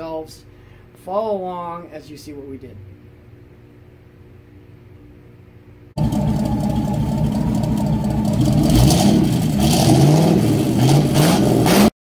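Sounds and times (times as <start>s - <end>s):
vehicle engine revving: 6.0s - 11.9s.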